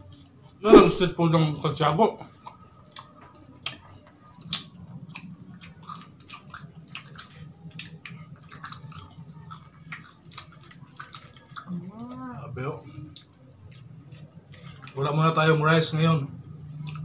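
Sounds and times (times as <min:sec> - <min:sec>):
close chewing with mouth smacks: 0:02.3 - 0:12.2, 0:12.8 - 0:15.1, 0:16.7 - 0:17.0.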